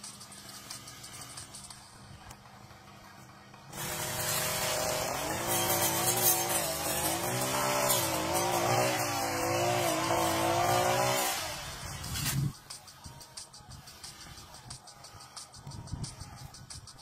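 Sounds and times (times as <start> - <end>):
brush cutter engine running: 3.7 - 12.5.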